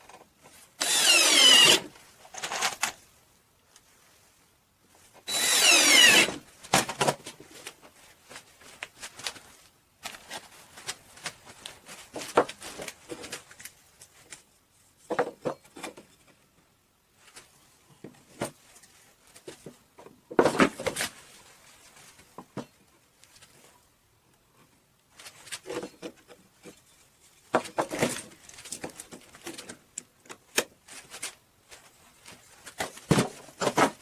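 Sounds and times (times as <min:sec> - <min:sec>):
cordless drill driving a screw: 0:00.8 - 0:01.9, 0:05.3 - 0:06.4.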